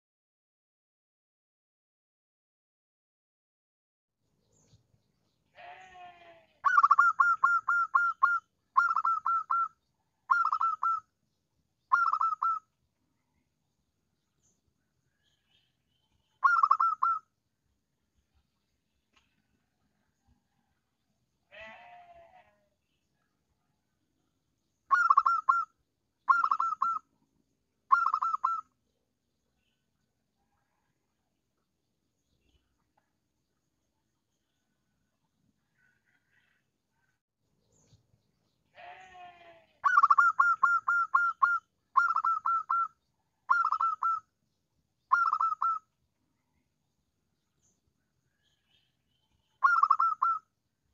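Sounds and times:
dove cooing: 0:06.6 - 0:09.7, 0:10.3 - 0:11.0, 0:11.9 - 0:12.6, 0:16.4 - 0:17.2, 0:24.9 - 0:25.7, 0:26.3 - 0:27.0, 0:27.9 - 0:28.6, 0:39.8 - 0:42.9, 0:43.5 - 0:44.2, 0:45.1 - 0:45.8, 0:49.6 - 0:50.4.

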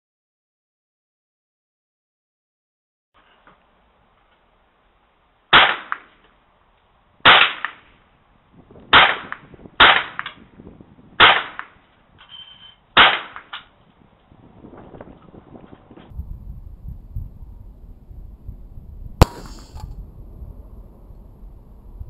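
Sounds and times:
rifle shots: 0:05.5 - 0:06.1, 0:07.2 - 0:07.8, 0:08.9 - 0:10.3, 0:19.2 - 0:19.8
fainter crack: 0:19.2 - 0:19.9.

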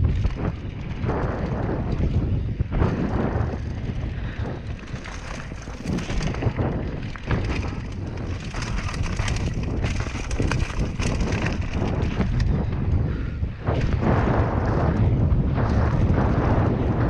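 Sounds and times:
bike clacks and knocks: 0:00.0 - 0:17.0
bike tyres rumbling over dirt: 0:00.0 - 0:17.0
wind buffeting microphone: 0:00.0 - 0:17.0.

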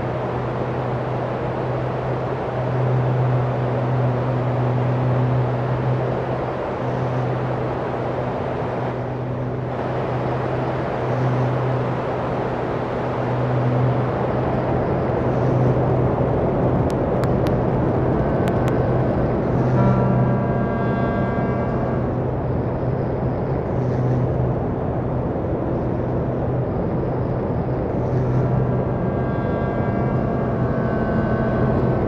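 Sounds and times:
low drone: 0:00.0 - 0:32.0
thin high tone: 0:18.5 - 0:22.7.

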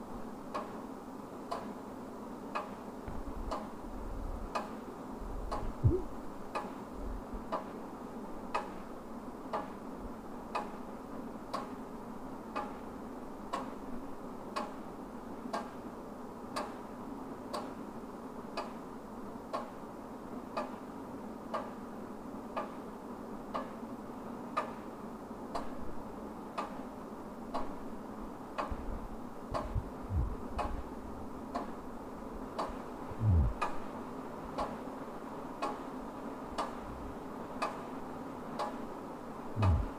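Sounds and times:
low steady hum: 0:02.9 - 0:07.5, 0:27.6 - 0:39.9
dull low thumps: 0:05.4 - 0:06.1, 0:29.6 - 0:30.8, 0:33.1 - 0:33.6, 0:39.6 - 0:39.9
wall clock ticking: 0:29.6 - 0:30.8, 0:32.6 - 0:33.8, 0:36.6 - 0:36.8, 0:37.6 - 0:37.8, 0:39.6 - 0:39.9.

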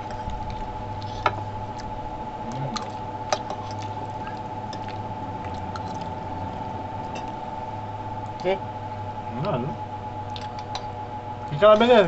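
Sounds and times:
steady background hum: 0:00.0 - 0:12.0
wet chewing and sucking: 0:00.1 - 0:06.7, 0:10.2 - 0:10.7.

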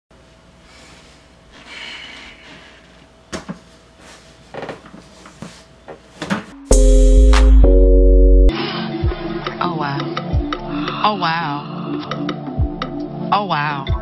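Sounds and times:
office chair creaking: 0:04.0 - 0:06.3
loud music with heavy bass: 0:06.7 - 0:09.6.

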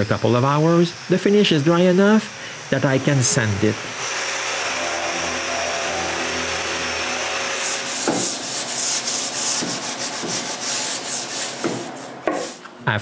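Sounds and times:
electric sander running: 0:00.0 - 0:12.2
hand sanding on wood: 0:04.7 - 0:12.7.

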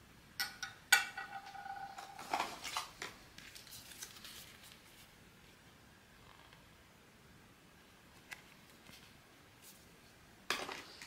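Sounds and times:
light clicks and rustling packaging: 0:02.2 - 0:05.1.

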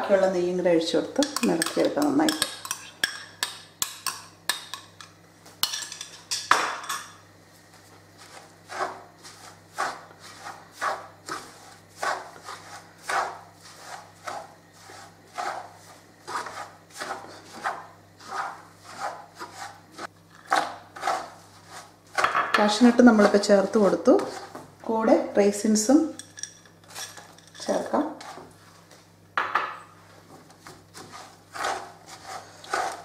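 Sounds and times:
spatula scraping a metal pan: 0:08.2 - 0:24.6, 0:30.6 - 0:33.0.

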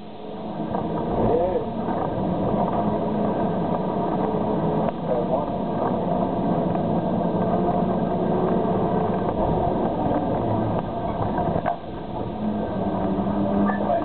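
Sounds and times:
heavy machine engine droning: 0:00.0 - 0:14.0.

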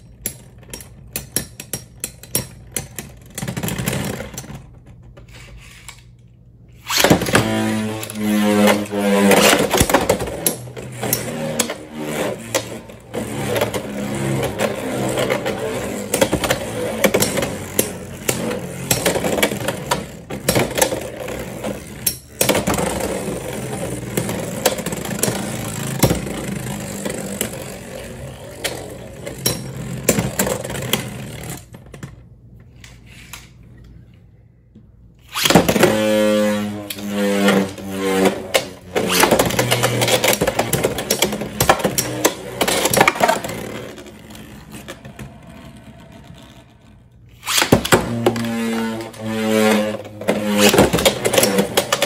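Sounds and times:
spinning tops whirring and scraping: 0:06.8 - 0:31.7, 0:35.2 - 0:52.0
launcher whir: 0:35.2 - 0:52.0.

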